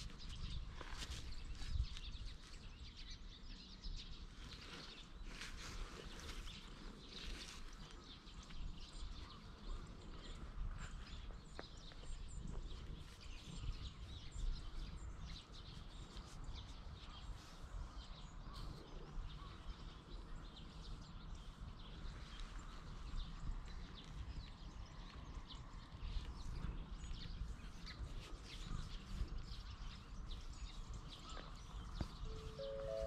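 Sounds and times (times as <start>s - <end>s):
small birds chirping: 0.0s - 33.0s.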